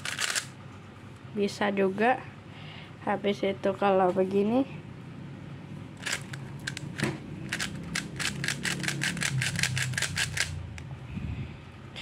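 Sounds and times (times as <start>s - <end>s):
puzzle cube clicking: 0.0s - 0.5s, 6.0s - 10.6s.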